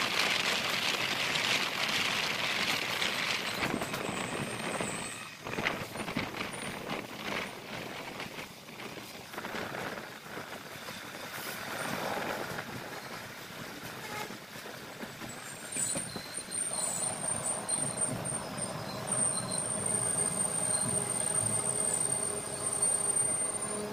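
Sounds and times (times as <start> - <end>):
passenger train running: 0.0 - 23.9
high train brake squeal: 3.4 - 6.8, 10.8 - 23.9.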